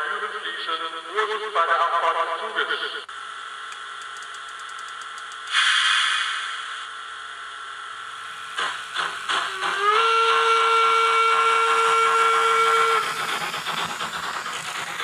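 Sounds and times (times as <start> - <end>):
steam locomotive hissing: 5.4 - 6.9, 8.0 - 15.0
burst of escaping steam: 5.5 - 6.8.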